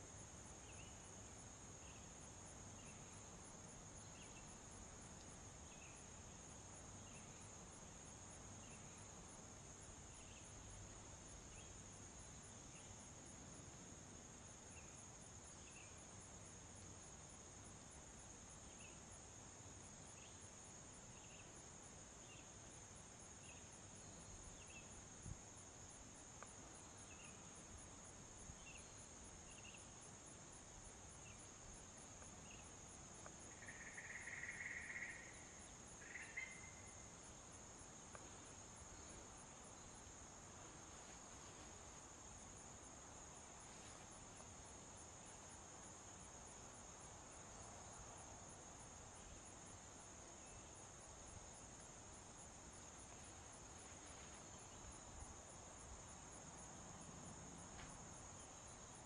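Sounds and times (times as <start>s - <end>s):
insect trilling: 33.5s - 37.0s.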